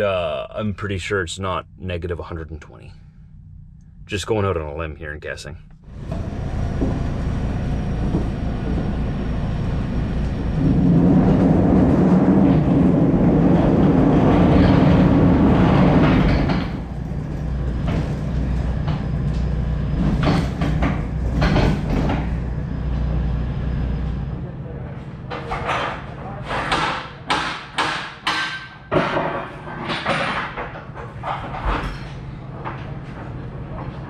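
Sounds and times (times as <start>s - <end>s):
rollers rumbling along rails: 5.9s - 27.2s
sharp knocks and clanks: 6.1s - 9.0s, 12.5s - 22.5s, 25.3s - 34.0s.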